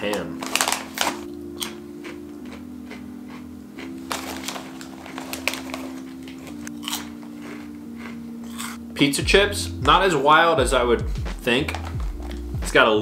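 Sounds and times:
foil chip bag crinkling: 0:00.0 - 0:08.8, 0:11.6 - 0:12.5
background music of held notes: 0:00.0 - 0:13.0.

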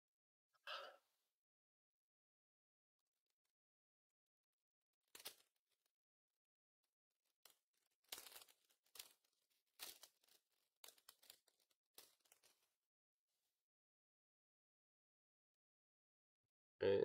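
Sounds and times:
foil wrapper tearing and crinkling: 0:05.2 - 0:05.6, 0:07.4 - 0:12.6.

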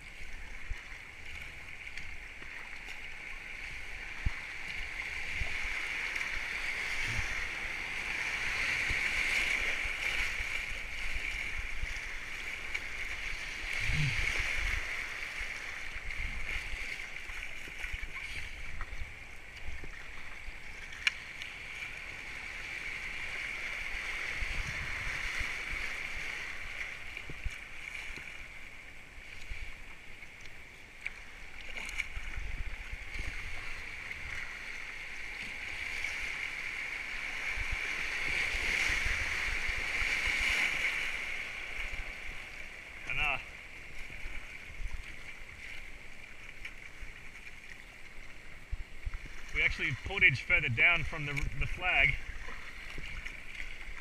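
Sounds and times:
whitewater rushing: 0:49.4 - 0:54.0.

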